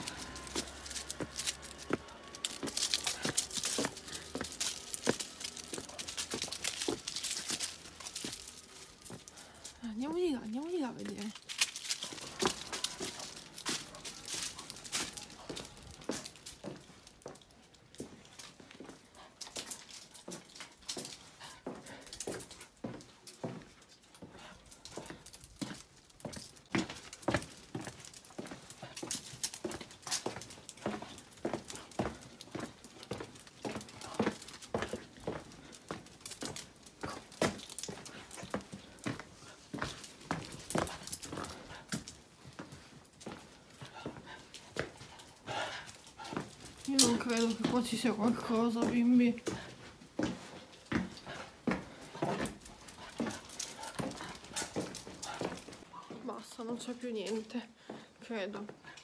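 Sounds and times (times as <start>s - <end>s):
footsteps on dry leaves: 0.0s - 9.8s
footsteps on stone floor: 0.0s - 59.0s.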